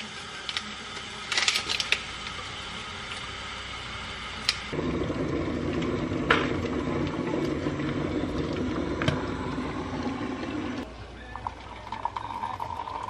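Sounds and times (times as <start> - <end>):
kettle water boiling: 0.0 - 13.0
kettle clicks: 5.6 - 10.8.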